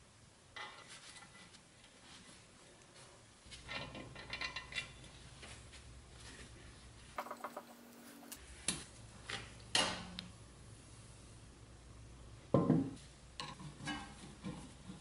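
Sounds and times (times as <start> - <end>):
metal clinks and knocks: 7.2 - 7.8.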